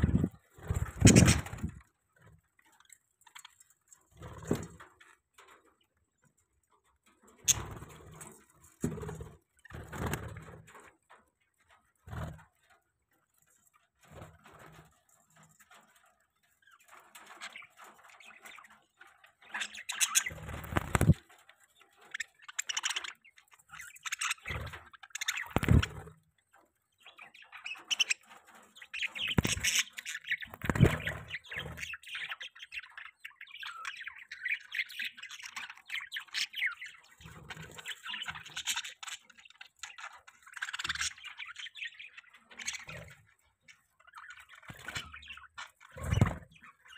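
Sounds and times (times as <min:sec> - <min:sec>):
budgerigars chirping and chattering: 0:00.0 - 0:01.8, 0:07.4 - 0:08.1, 0:16.6 - 0:21.2, 0:21.8 - 0:26.2, 0:26.9 - 0:46.9
wing flapping: 0:00.0 - 0:01.8, 0:19.6 - 0:21.4, 0:23.7 - 0:26.2, 0:27.8 - 0:32.1, 0:45.9 - 0:46.7.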